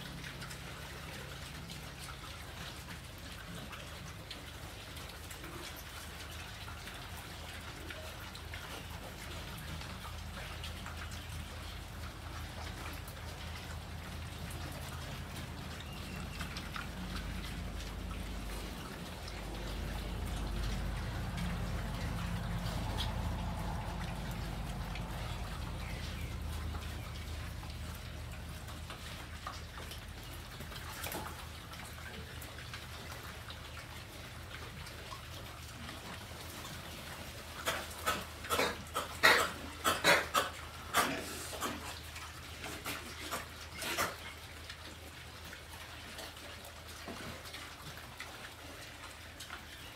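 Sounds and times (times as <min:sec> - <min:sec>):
pigs chewing and crunching: 0:00.0 - 0:49.9
low rumble: 0:15.2 - 0:28.9.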